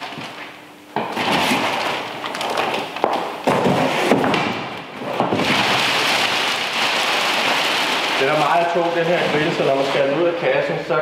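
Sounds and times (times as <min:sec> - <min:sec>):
plastic wrapping crinkling: 0:01.2 - 0:10.6
thuds and sharp taps: 0:03.0 - 0:05.6.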